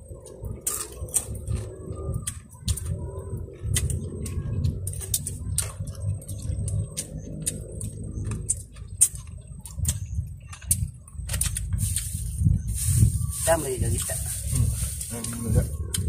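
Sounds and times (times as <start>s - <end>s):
low rumble: 0.0s - 16.0s
small clicks and crackles: 0.1s - 16.0s.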